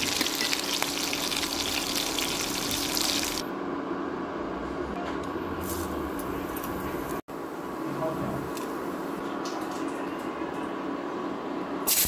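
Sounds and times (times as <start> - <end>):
fish sizzling in hot oil: 0.0 - 3.4.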